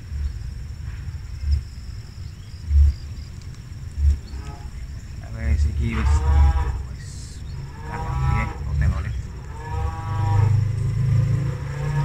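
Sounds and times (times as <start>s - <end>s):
steady low rumble: 0.0s - 12.0s
farm animal calling: 4.1s - 10.7s.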